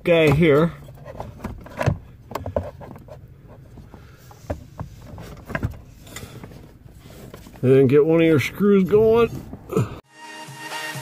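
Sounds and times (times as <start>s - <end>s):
light knocks clicks and scrapes: 0.1s - 7.8s.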